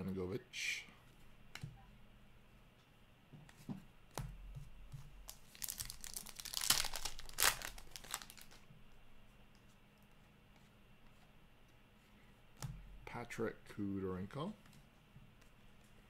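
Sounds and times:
plastic wrapper tearing and crinkling: 0:05.3 - 0:08.6.

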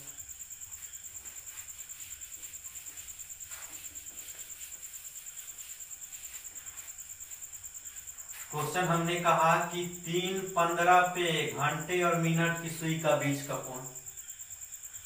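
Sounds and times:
cricket chirping: 0:00.0 - 0:15.0
hand rubbing on whiteboard: 0:00.7 - 0:09.2.

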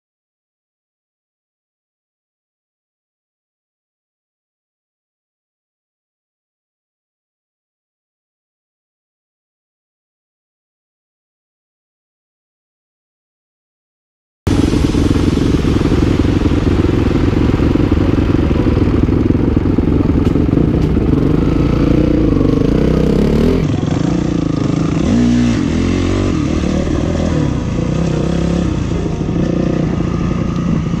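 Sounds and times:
dirt bike engine revving: 0:14.5 - 0:31.0.

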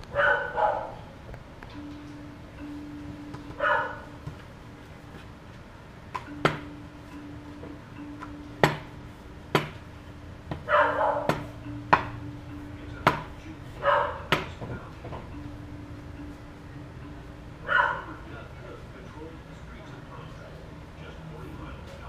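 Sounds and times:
dog barking: 0:00.1 - 0:01.0, 0:03.6 - 0:04.0, 0:10.7 - 0:11.5, 0:13.8 - 0:14.3, 0:17.6 - 0:18.2
rolling pin knocking on board: 0:06.1 - 0:06.7, 0:08.2 - 0:08.9, 0:09.5 - 0:09.8, 0:10.5 - 0:12.2, 0:13.0 - 0:13.4, 0:14.3 - 0:15.3.

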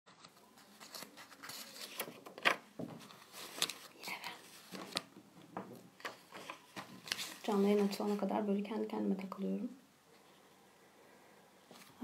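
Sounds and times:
paper rustling and crinkling: 0:00.1 - 0:05.1, 0:05.7 - 0:08.3.

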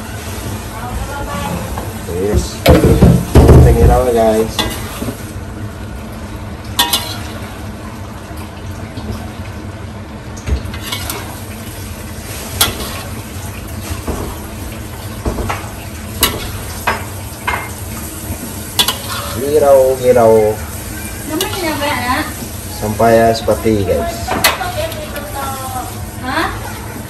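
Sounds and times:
food sizzling in a wok: 0:00.0 - 0:08.6, 0:10.2 - 0:27.0
metal spatula scraping a wok: 0:04.4 - 0:05.2, 0:06.8 - 0:07.4, 0:10.8 - 0:11.3, 0:12.4 - 0:13.2, 0:18.7 - 0:19.6, 0:20.9 - 0:22.0.

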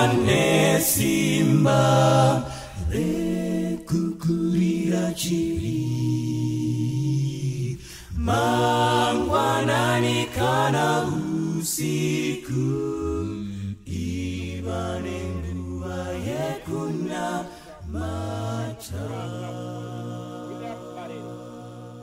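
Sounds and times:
people singing unaccompanied: 0:00.0 - 0:22.0.

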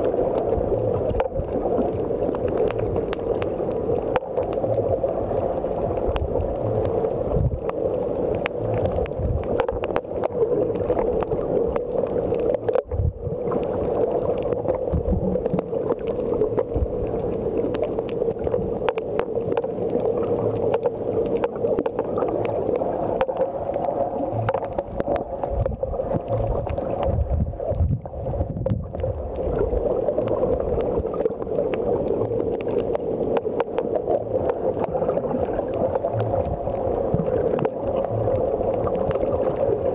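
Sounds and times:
crackling clicks: 0:00.0 - 0:39.9
steady underwater hum: 0:00.0 - 0:39.9
muffled low thumps: 0:27.1 - 0:28.9.

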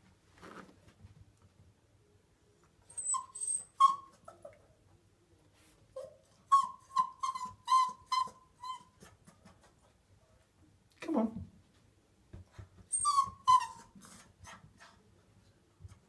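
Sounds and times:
puppy whining and whimpering: 0:02.9 - 0:04.6, 0:06.0 - 0:09.4, 0:12.8 - 0:14.6.

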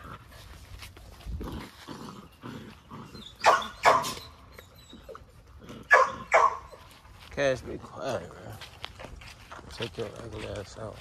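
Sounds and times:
puppies growling low: 0:00.0 - 0:07.2
dog barking sharply: 0:03.4 - 0:04.2, 0:05.9 - 0:06.7.

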